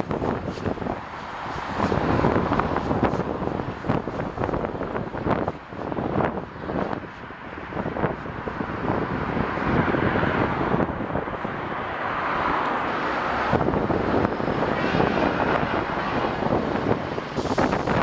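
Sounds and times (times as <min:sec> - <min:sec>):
wind buffeting microphone: 0:00.0 - 0:18.0
steam locomotive passing: 0:11.6 - 0:18.0.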